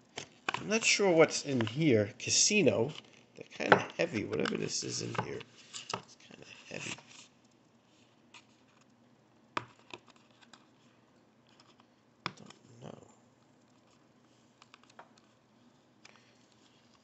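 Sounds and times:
quiet handling noise: 0.1 - 7.6.

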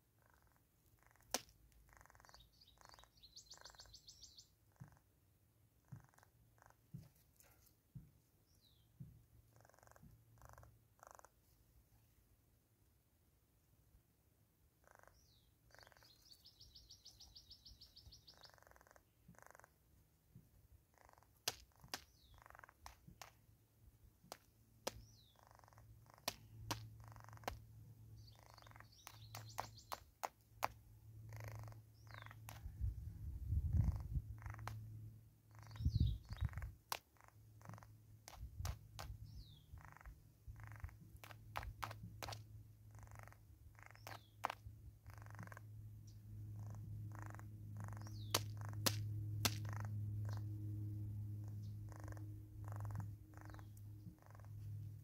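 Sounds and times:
bird bill tapping on wood: 1.0 - 4.2, 21.0 - 23.5, 24.2 - 27.7, 28.3 - 32.8, 33.9 - 34.9, 35.6 - 45.7, 47.2 - 50.4
high bird chirps: 1.9 - 4.6, 15.1 - 18.8, 28.2 - 30.3, 31.3 - 32.6, 35.5 - 37.9, 43.0 - 45.6, 46.6 - 48.9, 51.4 - 54.6
steady low hum: 19.2 - 55.0
sharp taps: 21.4 - 23.4, 24.2 - 25.1, 26.2 - 27.7, 28.6 - 30.8, 41.2 - 42.5, 44.0 - 44.7, 48.0 - 49.8.

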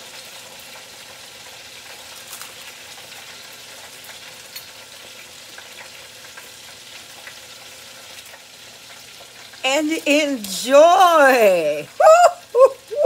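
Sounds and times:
hot oil sizzling: 0.0 - 13.0
oil crackling and popping: 0.0 - 13.0.

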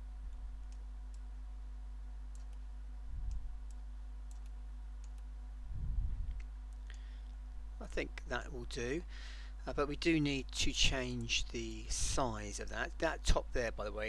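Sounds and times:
low electrical hum: 0.0 - 14.0
computer mouse clicking: 2.3 - 2.6, 3.3 - 5.3.

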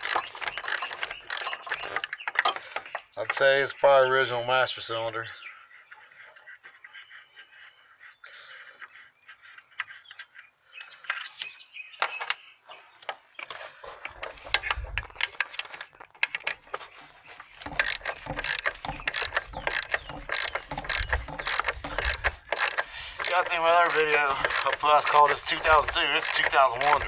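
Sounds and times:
ratchet wrench clicking: 17.7 - 24.8.

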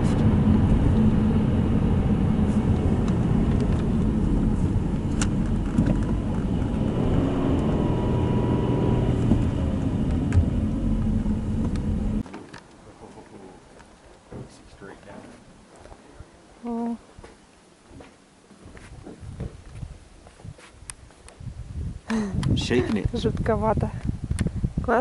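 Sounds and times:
engine and tyre rumble in car: 0.0 - 12.4.

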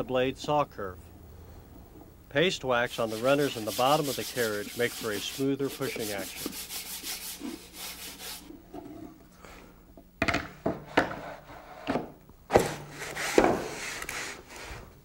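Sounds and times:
wax rubbed onto wood: 2.8 - 8.6.

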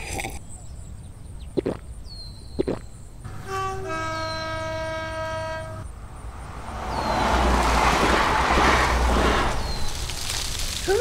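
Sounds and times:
passenger train passing: 3.2 - 9.9
train horn chord: 3.3 - 5.9.

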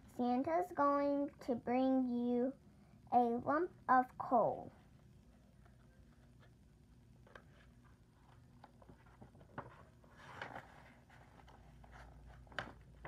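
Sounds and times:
book page turning: 7.2 - 13.0.

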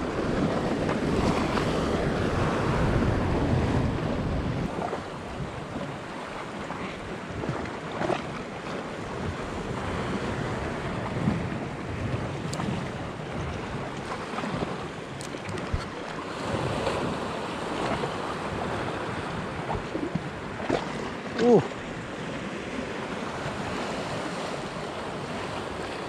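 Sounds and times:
wind buffeting microphone: 0.0 - 6.2, 8.9 - 21.1
sea water washing against rocks: 0.0 - 26.0.

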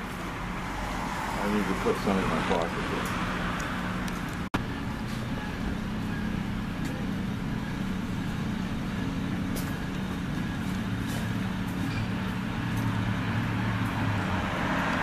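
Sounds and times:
low rumbling urban hum: 0.0 - 15.0.

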